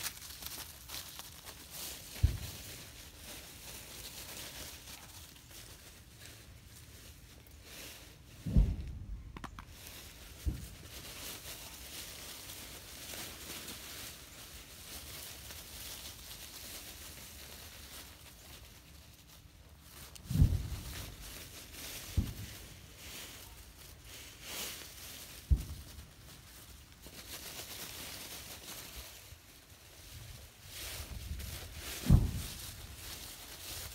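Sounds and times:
dry leaves rustling and crunching: 0.0 - 33.9
low thump: 8.4 - 9.2.

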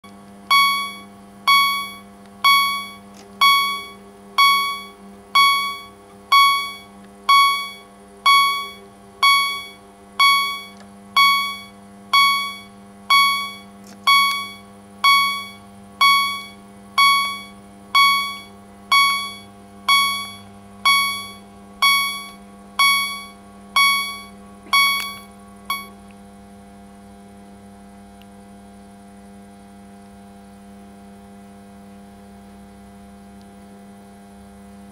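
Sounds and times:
steady electrical hum: 0.0 - 34.9
level crossing warning bell: 0.5 - 25.9.

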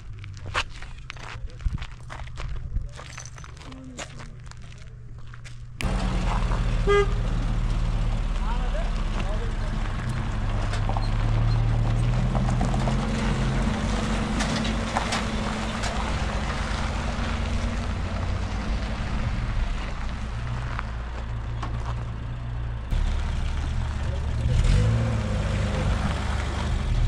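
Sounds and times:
vehicle engine running: 5.8 - 27.0.

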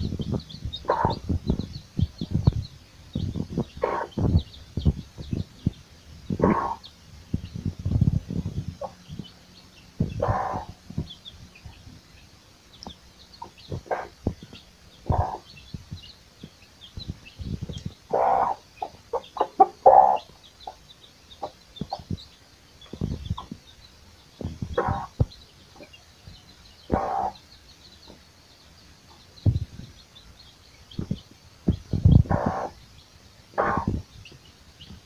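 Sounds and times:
low thumps: 0.0 - 9.3, 22.9 - 23.6, 29.4 - 30.0, 31.0 - 32.7
hen clucking: 0.0 - 11.9, 12.8 - 23.7, 24.4 - 26.0, 26.8 - 28.2, 30.9 - 32.8, 33.5 - 35.0
chicks peeping: 0.0 - 35.0.

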